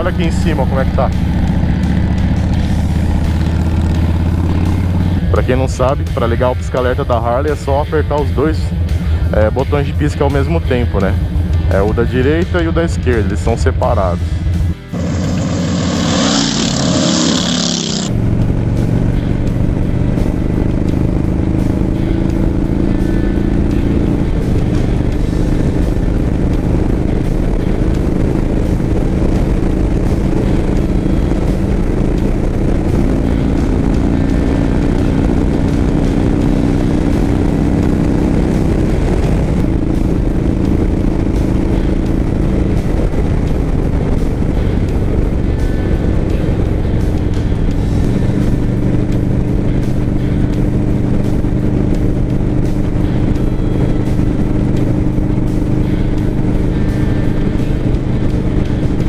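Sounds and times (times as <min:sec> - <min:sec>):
motorcycle engine cruising: 0:00.0 - 0:59.0
wind rushing past: 0:14.9 - 0:18.1.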